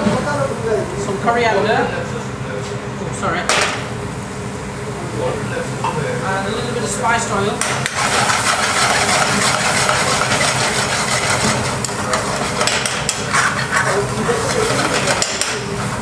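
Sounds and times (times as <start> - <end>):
tomatoes sizzling in oil: 7.6 - 16.0
metal spoon scraping pan: 7.9 - 15.3.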